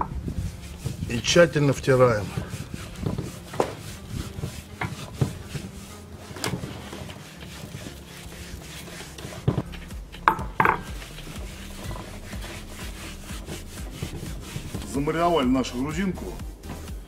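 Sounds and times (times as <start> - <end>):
hands rubbing spice into meat: 0.4 - 6.0, 6.7 - 10.2, 10.8 - 15.1.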